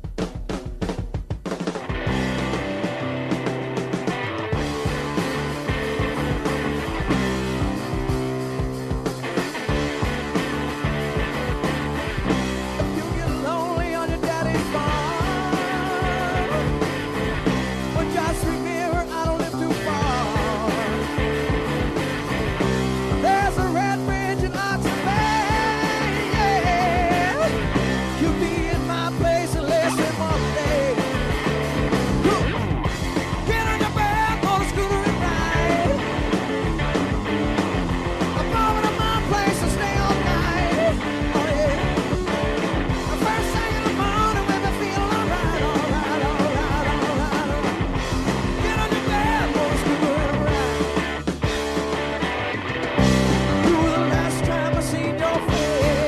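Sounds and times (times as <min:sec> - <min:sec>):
bass: 0:00.0 - 0:56.0
drums: 0:00.0 - 0:56.0
hard rock band playing live: 0:00.0 - 0:56.0
slide electric guitar lead: 0:01.8 - 0:56.0.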